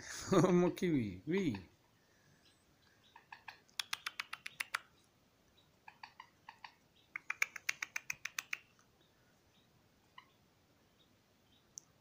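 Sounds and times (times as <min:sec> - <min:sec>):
bird clicking its beak: 0:03.4 - 0:04.9, 0:06.6 - 0:08.8.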